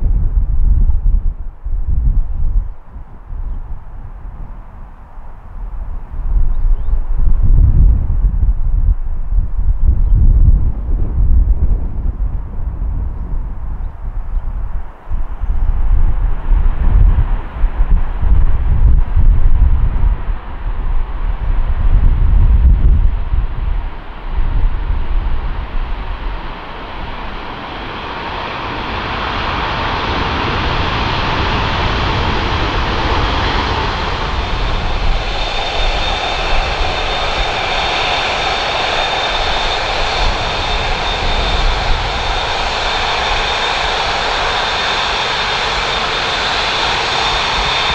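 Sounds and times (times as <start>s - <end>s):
loud jet engine rush: 0.0s - 47.9s
wind buffeting microphone: 0.0s - 47.9s
high engine whine: 14.8s - 47.9s.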